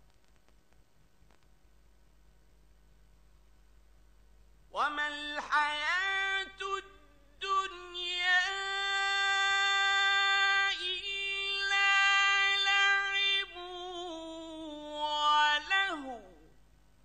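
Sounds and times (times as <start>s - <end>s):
man chanting melodically: 4.8s - 16.5s.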